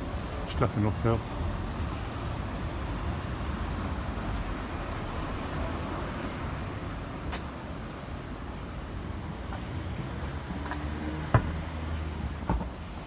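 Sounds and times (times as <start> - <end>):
city street traffic: 0.0 - 13.0.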